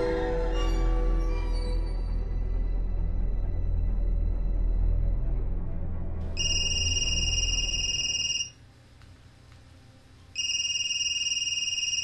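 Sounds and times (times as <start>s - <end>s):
mobile phone ringing: 6.4s - 8.6s, 10.4s - 12.0s.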